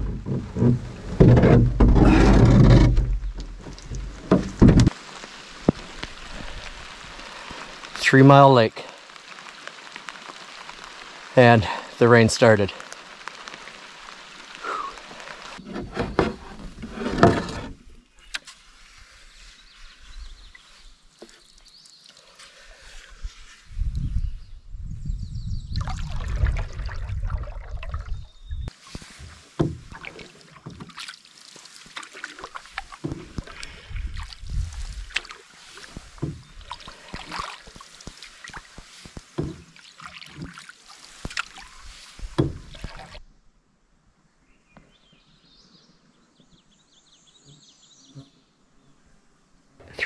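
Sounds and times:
wind rumbling on microphone: 0:23.1 - 0:29.9, 0:33.1 - 0:36.9
paddle splashes: 0:28.7 - 0:43.2.

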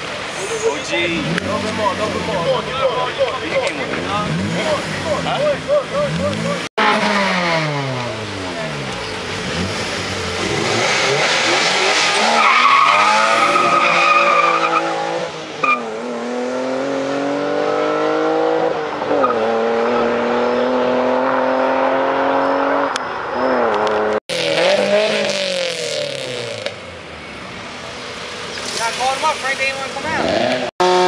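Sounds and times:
car engines revving: 0:00.0 - 0:31.0
tyres squealing: 0:11.9 - 0:14.9.

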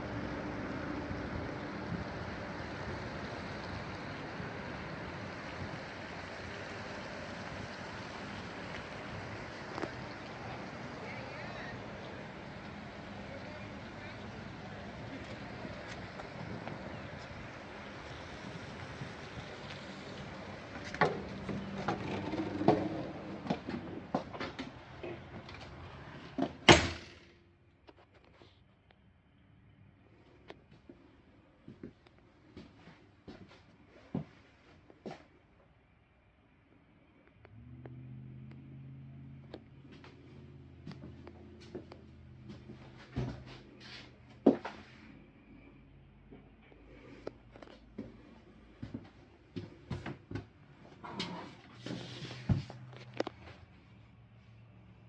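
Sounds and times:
outdoor noise: 0:00.0 - 0:55.0
door slamming shut: 0:26.6 - 0:27.2
footsteps on steps and floor: 0:39.8 - 0:45.1, 0:46.3 - 0:53.6.

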